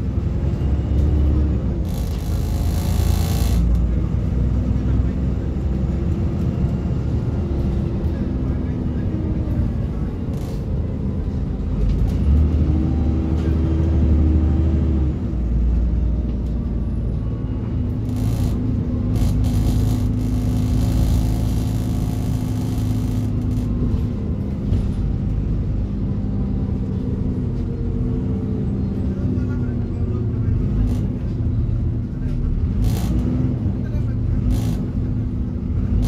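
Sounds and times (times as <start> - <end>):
bus diesel engine droning: 0.0 - 36.0
road noise: 0.0 - 36.0.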